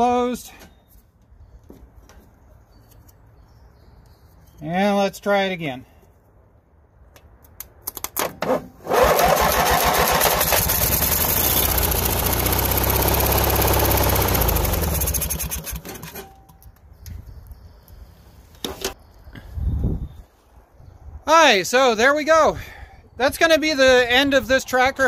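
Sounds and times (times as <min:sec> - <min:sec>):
electric starter cranking: 0:08.8 - 0:16.3
lawn tractor engine running: 0:08.8 - 0:16.5.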